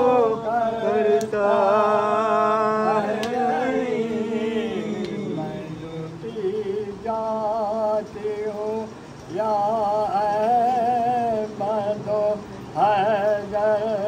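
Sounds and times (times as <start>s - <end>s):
lament chanted in wavering notes: 0.0s - 7.8s.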